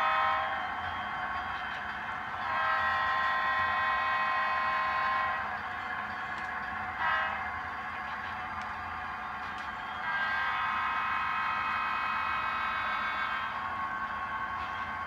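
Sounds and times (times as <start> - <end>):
model train air horn: 0.0 - 0.6, 2.4 - 5.6, 7.0 - 7.5, 10.0 - 11.2, 12.0 - 13.6.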